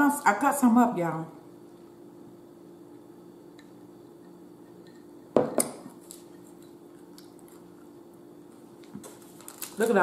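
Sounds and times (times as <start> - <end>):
faint steady hum: 0.0 - 10.0
glass knocking on table: 5.3 - 5.8.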